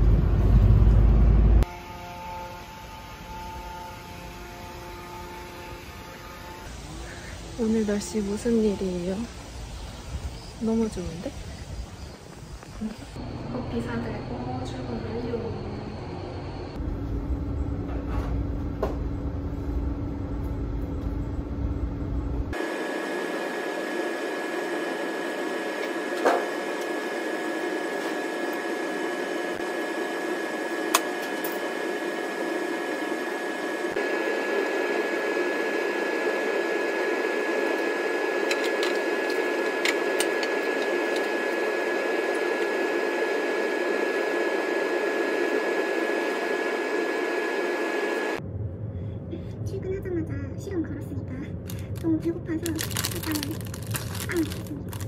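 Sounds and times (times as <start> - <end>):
constant high whine: 0.0 - 55.0
ventilation hum: 0.0 - 55.0.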